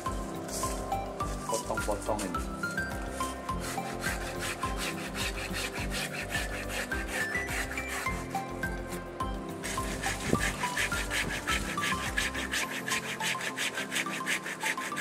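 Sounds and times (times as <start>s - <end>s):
pruning saw rasping through wood: 0.0s - 15.0s.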